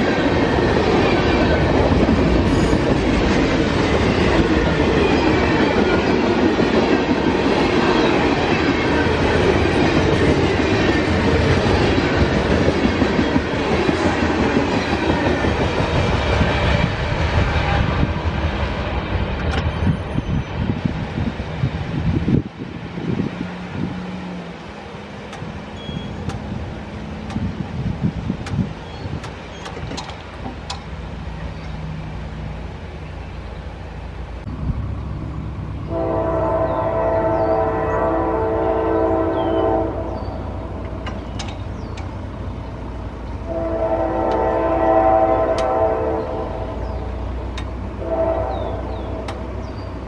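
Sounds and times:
low diesel rumble: 30.2 - 37.4
locomotive air horn: 35.9 - 40.3, 43.4 - 46.8, 48.0 - 49.3.

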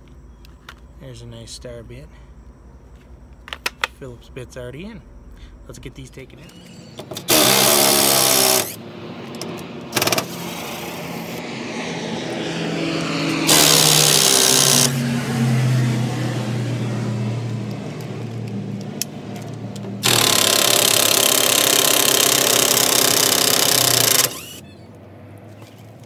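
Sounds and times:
low engine-like hum: 0.0 - 7.3, 8.7 - 20.1, 24.2 - 26.0
impact driver whirring: 7.0 - 8.8, 9.9 - 10.6, 13.3 - 15.0, 20.0 - 24.7.

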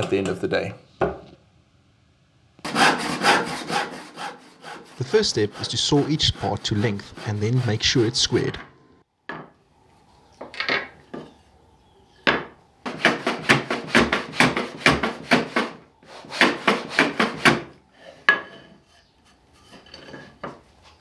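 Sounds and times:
hand plane scraping end grain: 2.7 - 8.4.

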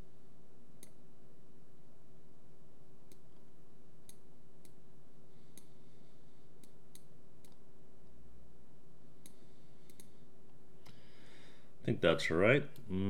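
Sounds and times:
faint steady hum: 0.0 - 13.0
computer mouse clicking: 0.8 - 1.0, 3.1 - 4.8, 5.5 - 5.8, 6.6 - 7.6, 9.2 - 10.2.

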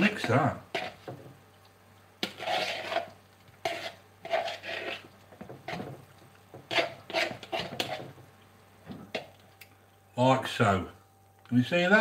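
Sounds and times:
spoon stirring in plastic bowl: 0.2 - 1.4, 2.2 - 8.2.

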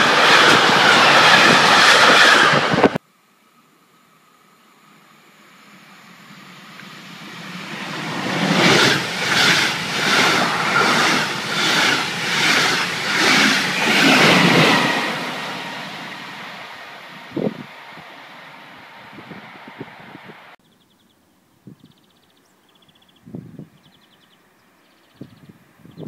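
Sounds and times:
train passing at speed: 0.0 - 3.0, 4.2 - 20.6.

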